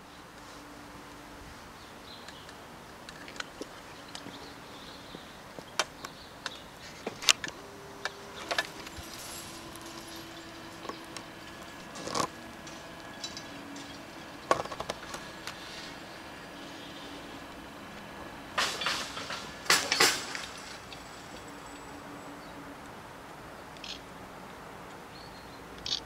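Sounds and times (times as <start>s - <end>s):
faint steady hum: 0.0s - 26.0s
barrier clicks and knocks: 7.1s - 21.6s.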